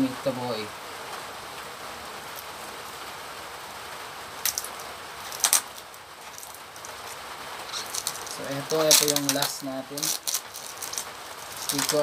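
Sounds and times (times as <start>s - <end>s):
rain hissing: 0.0s - 12.0s
plastic bag crinkling: 4.4s - 12.0s.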